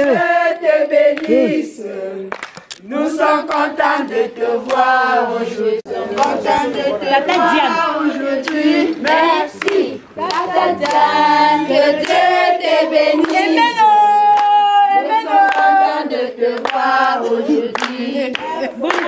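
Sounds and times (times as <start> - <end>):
group singing unaccompanied: 0.0 - 19.0
hand clapping: 1.1 - 1.5, 2.3 - 2.8, 3.4 - 4.9, 6.1 - 7.5, 8.4 - 11.1, 12.0 - 12.3, 13.2 - 13.7, 15.4 - 15.8, 16.5 - 16.9, 17.7 - 19.0.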